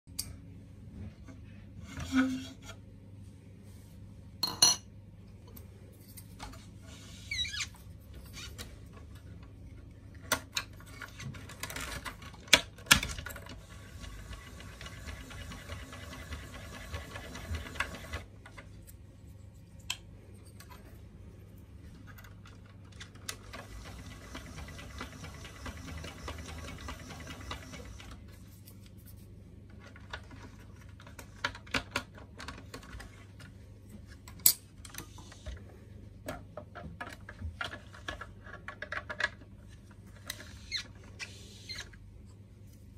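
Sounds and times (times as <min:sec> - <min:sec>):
plastic parts clicking and knocking: 0:29.7 - 0:33.5, 0:36.2 - 0:40.6.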